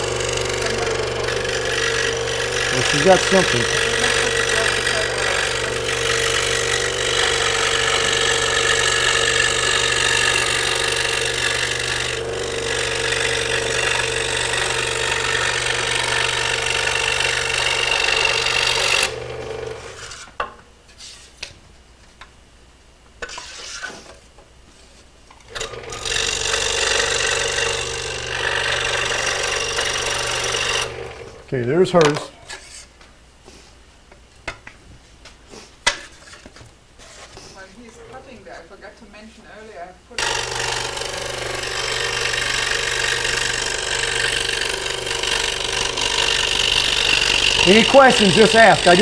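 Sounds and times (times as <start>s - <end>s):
scroll saw cutting plywood: 0.0s - 20.3s, 25.6s - 31.3s, 40.2s - 49.0s.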